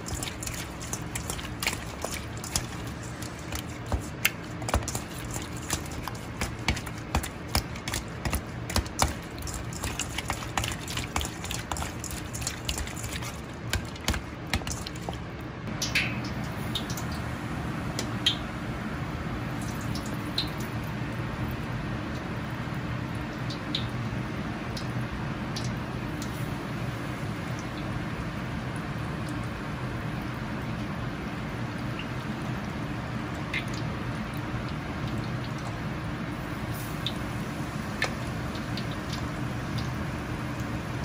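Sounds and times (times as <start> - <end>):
wet squelching of raw meat: 0.0 - 15.4
deep-frying sizzle with pops: 0.0 - 18.6, 19.5 - 41.0.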